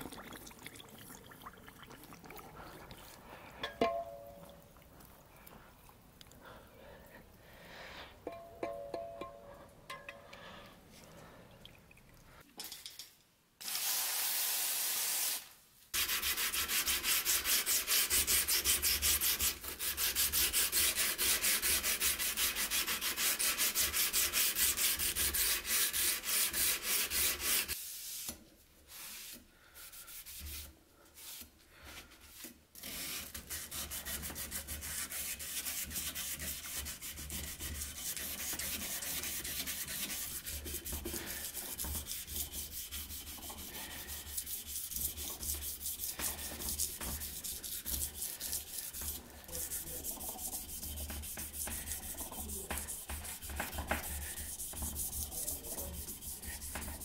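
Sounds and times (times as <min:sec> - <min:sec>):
knife blade being sanded: 0:16.0 - 0:27.8, 0:32.8 - 0:57.0.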